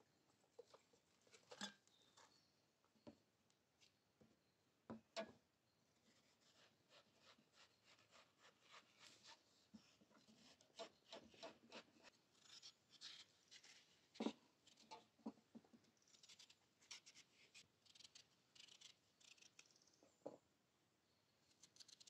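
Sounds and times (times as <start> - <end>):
knife cutting watermelon rind: 6.3 - 9.4.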